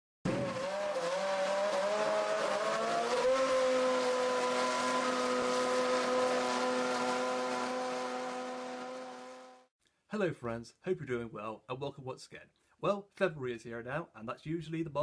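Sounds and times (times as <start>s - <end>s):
racing car engine revving: 0.3s - 9.7s.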